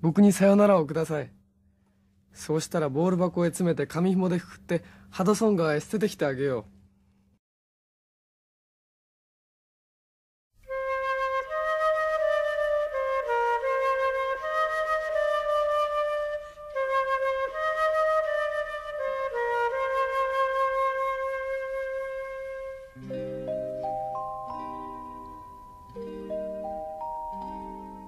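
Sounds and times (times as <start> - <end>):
low instrument notes: 10.6 - 28.0
slow solo flute melody: 10.6 - 28.0.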